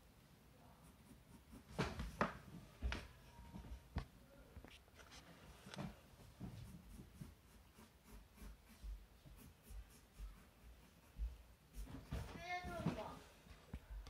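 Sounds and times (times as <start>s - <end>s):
pencil scratching on paper: 0.8s - 2.5s, 6.2s - 12.9s.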